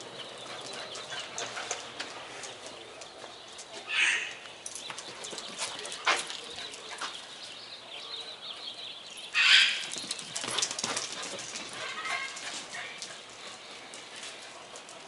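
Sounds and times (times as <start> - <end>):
dog claws clicking on concrete: 0.4 - 7.2, 9.8 - 13.2.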